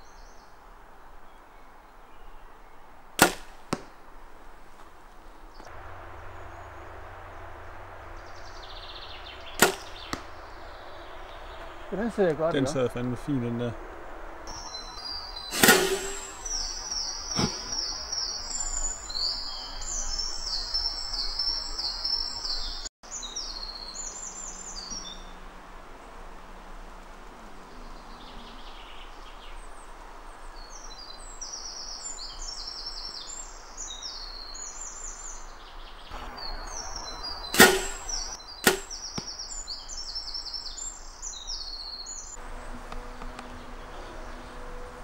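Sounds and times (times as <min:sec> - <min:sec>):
songbirds singing: 0:00.0 - 0:45.0
bow string snap: 0:03.2 - 0:03.9, 0:09.6 - 0:10.3, 0:15.5 - 0:16.5, 0:37.5 - 0:39.4
smaller crack: 0:03.2 - 0:04.0, 0:09.6 - 0:10.3, 0:15.5 - 0:16.5, 0:37.6 - 0:39.4.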